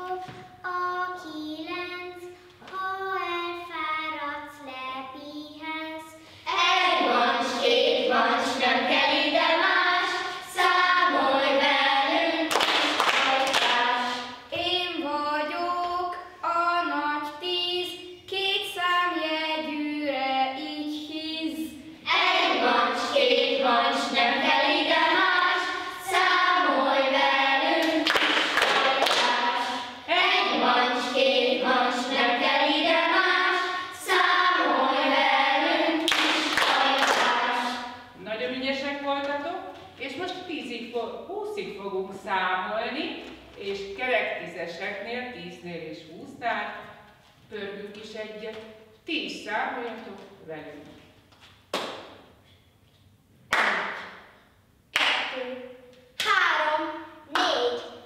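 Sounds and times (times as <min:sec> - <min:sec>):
children and woman singing: 0:06.5 - 0:38.1.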